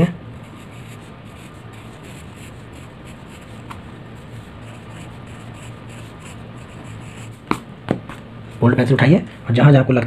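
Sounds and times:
steady low hum: 0.0 - 10.0
pencil scratching on paper: 0.4 - 7.5.

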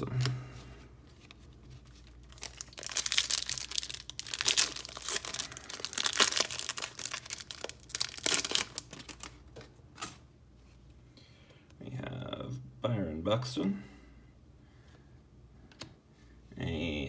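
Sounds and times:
foil wrapper tearing and crinkling: 2.0 - 9.4.

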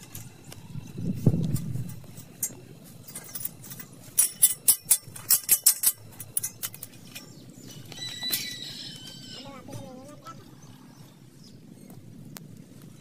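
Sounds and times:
metallic clinks: 2.1 - 7.3.

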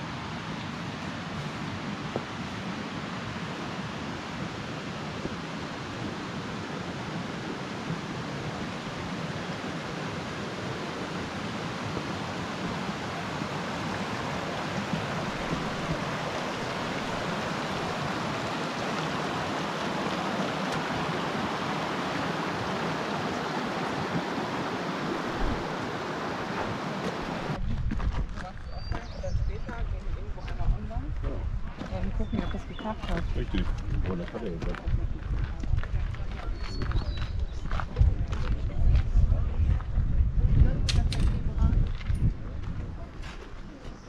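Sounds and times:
creek rushing over rocks: 0.0 - 40.3.

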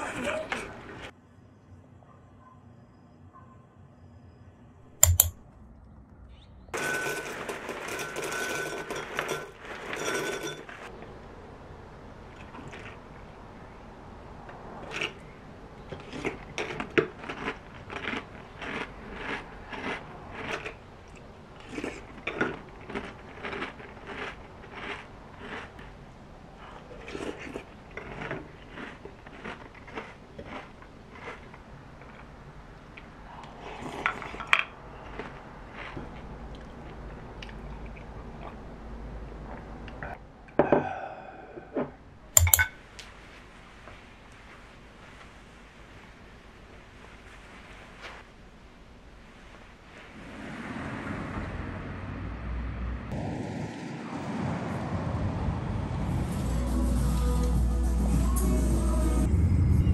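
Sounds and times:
wooden spoon knocking glass: 5.0 - 5.3, 42.4 - 42.8
glass clinking and ringing: 6.8 - 10.9, 42.4 - 42.8
chewing crunchy cereal: 12.3 - 13.4, 14.8 - 38.7.

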